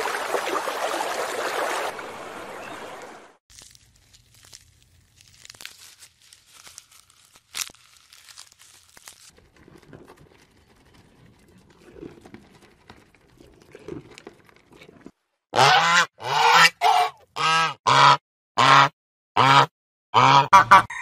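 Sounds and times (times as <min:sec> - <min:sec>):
faint crackling and rustling: 0:03.5 - 0:15.1
goat chewing grass: 0:03.5 - 0:15.1.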